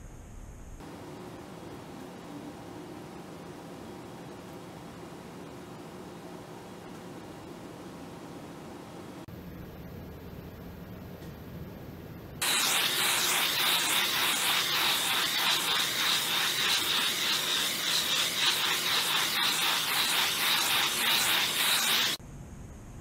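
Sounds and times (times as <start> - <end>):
gas torch hissing: 12.4 - 22.2.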